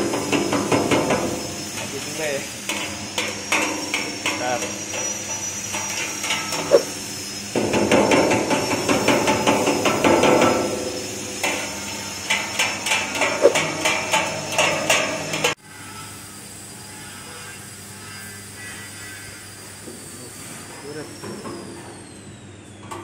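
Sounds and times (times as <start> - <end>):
machine high whine: 0.0 - 23.0
metal drum clattering: 7.6 - 15.6.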